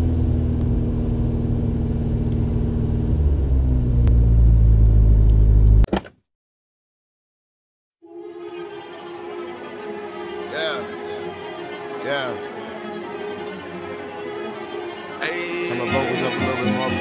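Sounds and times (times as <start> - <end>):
car engine rumbling: 0.0 - 5.9.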